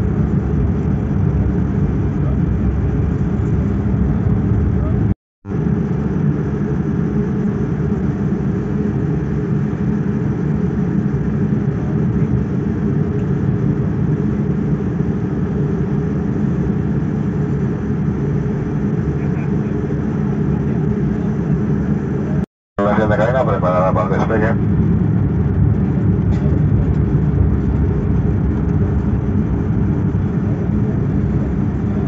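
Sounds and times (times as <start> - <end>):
airplane cabin low rumble: 0.0 - 32.0.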